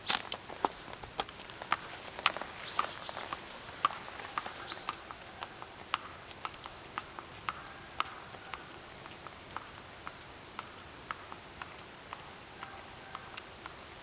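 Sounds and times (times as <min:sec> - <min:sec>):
hooves clip-clopping on asphalt: 0:00.0 - 0:14.0.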